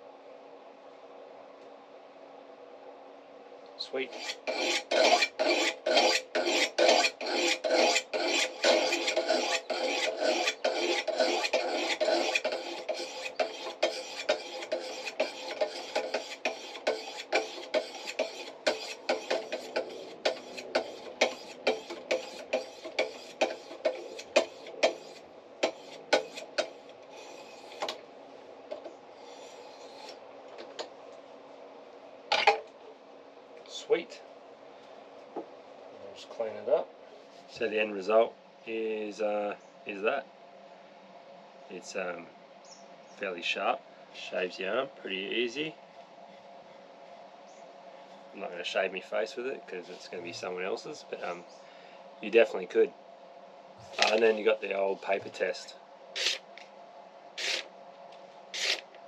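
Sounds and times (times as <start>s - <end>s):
stone rasping on steel blade: 4.1s - 28.0s, 29.2s - 30.2s.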